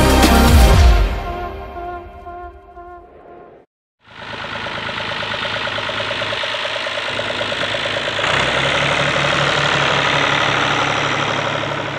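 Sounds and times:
tractor diesel engine idling: 4.0 - 11.9.

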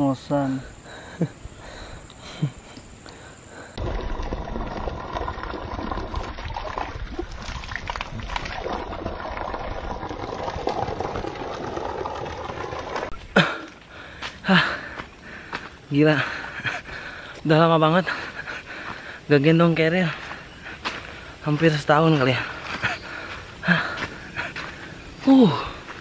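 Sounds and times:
water pouring and splashing: 3.8 - 13.2.

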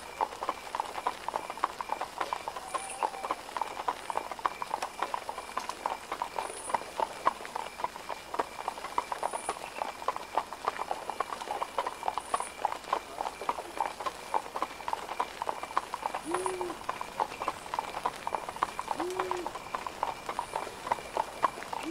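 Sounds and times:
hooves clip-clopping on stone: 0.0 - 21.9.

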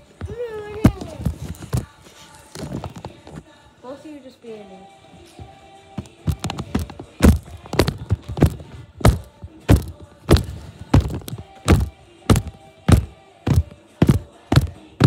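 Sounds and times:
music from a tv: 0.0 - 15.0
feet thudding on floor: 6.0 - 15.0.

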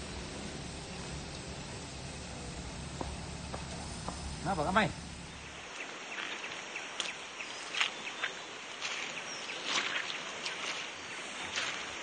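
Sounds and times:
steady forest hiss: 0.0 - 12.0
irregular ticks and scuffs: 2.5 - 12.0.

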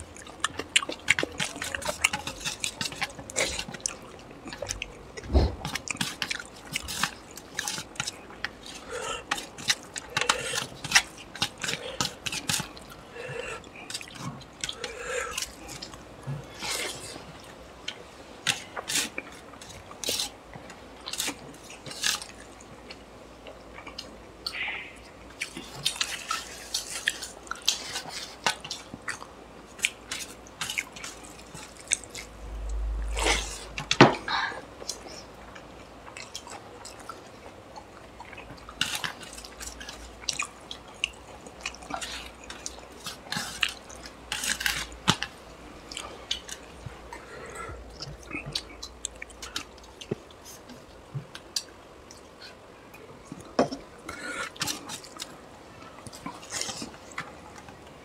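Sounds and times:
food squelching: 0.0 - 17.5
wet chewing: 0.0 - 34.0, 34.8 - 52.6.

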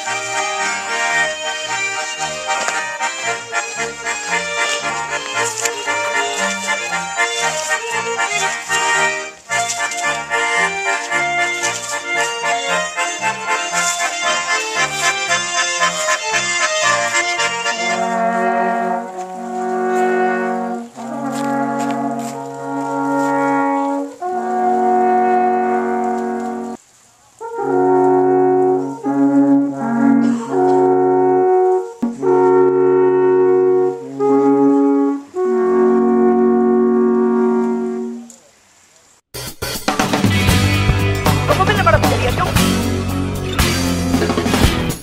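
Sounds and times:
fast instrumental music: 0.0 - 18.7, 32.0 - 32.9, 39.4 - 45.0
alphorns playing held chords: 0.0 - 26.8, 27.4 - 38.3, 40.0 - 45.0.

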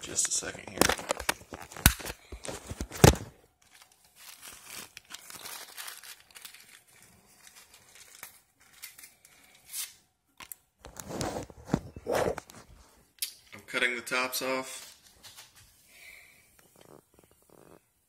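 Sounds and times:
paper tearing and crinkling: 0.8 - 10.0.

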